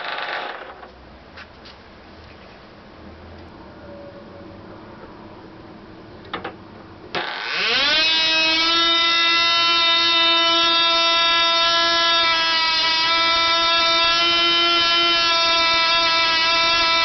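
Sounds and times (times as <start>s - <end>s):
model engine high-pitched scream: 7.2s - 17.0s.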